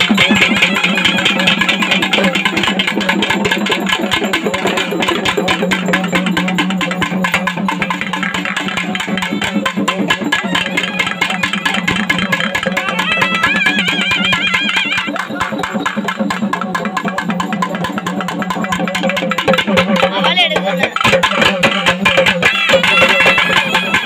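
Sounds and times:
fast dense drumming: 0:00.0 - 0:24.0
high wavering melody: 0:04.9 - 0:16.6.

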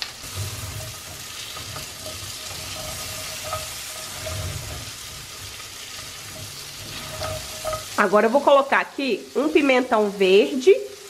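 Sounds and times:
spatula stirring against pan: 0:00.0 - 0:08.6
onion sizzling in frying pan: 0:00.0 - 0:11.0.

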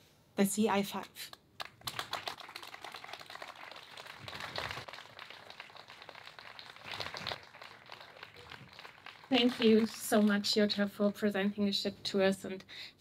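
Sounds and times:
audience applauding: 0:01.6 - 0:10.5.

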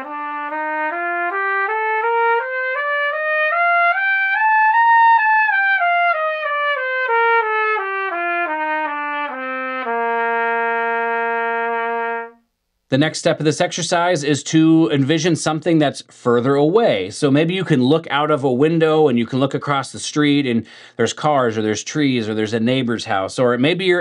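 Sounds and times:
trumpet playing a scale: 0:00.0 - 0:12.5.

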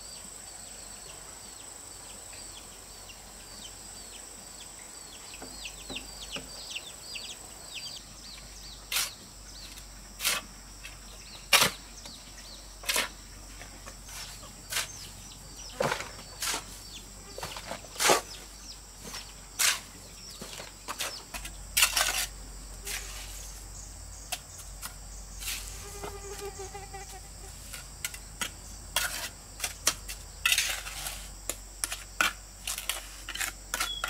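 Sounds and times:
bird chirping: 0:00.0 - 0:09.9, 0:10.8 - 0:21.6, 0:33.8 - 0:34.0.

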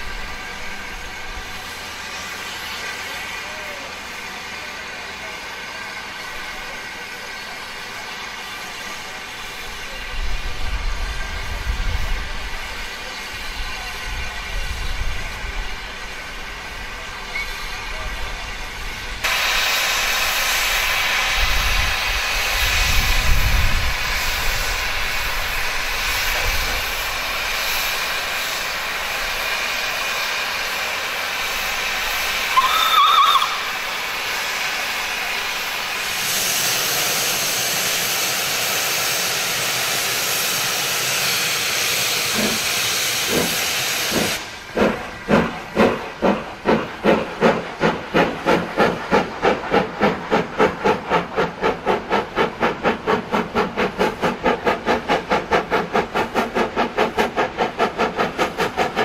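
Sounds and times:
locomotive chuffing: 0:00.0 - 0:59.0
steam locomotive hissing: 0:00.0 - 0:59.0
steam whistle blast: 0:32.5 - 0:34.2.

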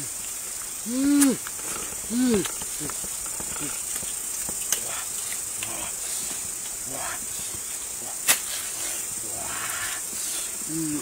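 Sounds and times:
high-pitched insect drone: 0:00.0 - 0:11.0
machete chop: 0:08.2 - 0:08.6.

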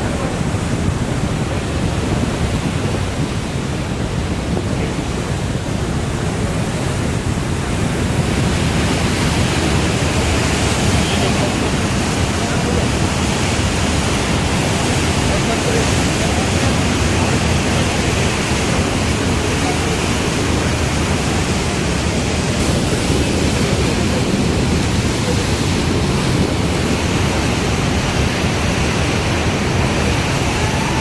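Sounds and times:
water rushing through dam gates: 0:00.0 - 0:31.0
wind on microphone: 0:00.0 - 0:31.0.

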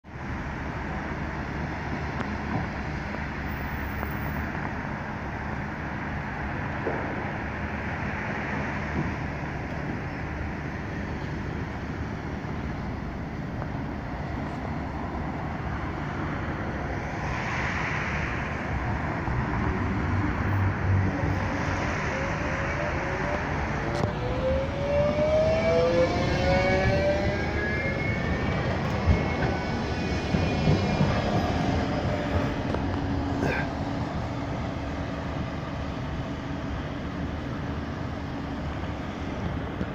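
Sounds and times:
electric tram humming: 0:00.0 - 0:39.9
tram motors whining: 0:18.5 - 0:39.9.

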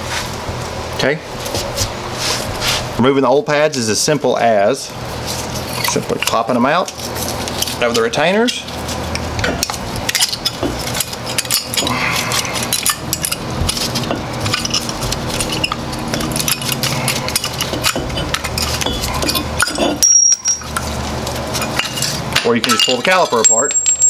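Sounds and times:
metal brake parts clinking: 0:09.1 - 0:24.0.

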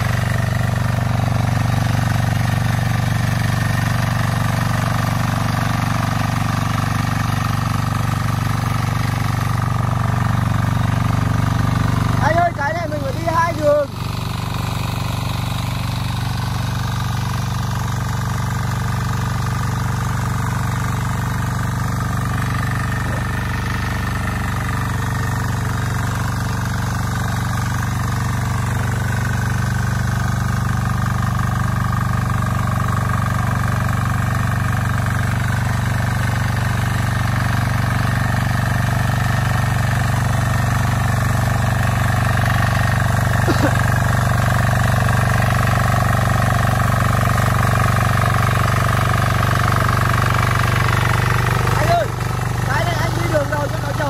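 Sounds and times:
tiller diesel engine running: 0:00.0 - 0:54.0.

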